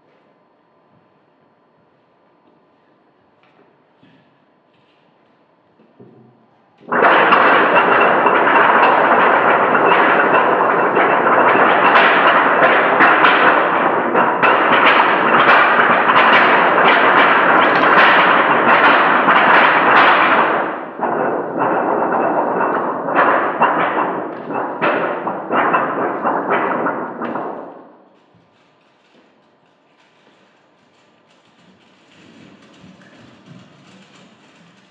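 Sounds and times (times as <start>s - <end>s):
loud dense crackling: 6.9s - 27.9s.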